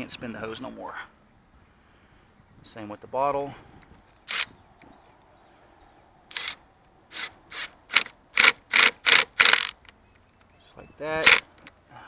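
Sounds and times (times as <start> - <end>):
socket wrench ratcheting: 6.3 - 9.8, 11.2 - 11.5.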